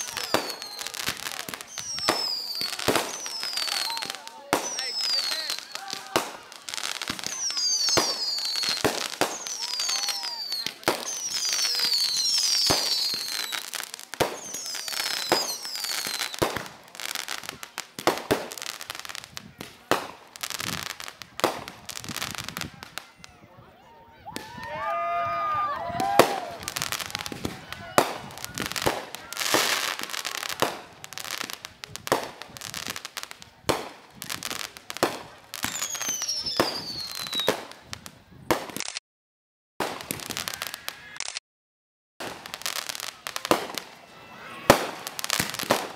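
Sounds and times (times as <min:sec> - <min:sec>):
firework whistles sliding down: 0:00.0 - 0:05.8, 0:06.7 - 0:16.4, 0:35.6 - 0:37.6
fireworks bangs: 0:00.0 - 0:23.4, 0:24.3 - 0:39.0, 0:39.8 - 0:41.3, 0:42.2 - 0:45.9
crackling pops: 0:26.0 - 0:39.0, 0:39.8 - 0:41.4.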